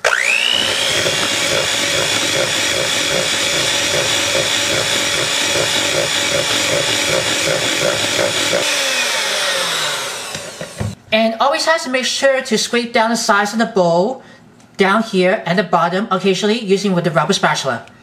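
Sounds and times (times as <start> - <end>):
electric hand mixer whine: 0.0 - 11.0.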